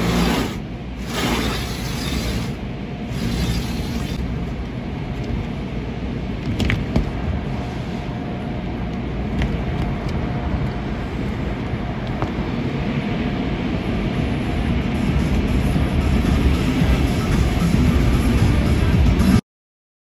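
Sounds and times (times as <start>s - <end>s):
car wash brushes rubbing and slapping: 0.0s - 4.2s
rumble of water and wash machinery: 0.0s - 19.4s.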